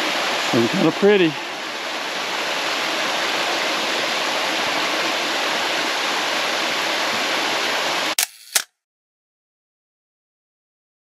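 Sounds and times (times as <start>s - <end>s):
waterfall rushing: 0.0s - 8.2s
sharp clicks: 8.2s - 8.7s.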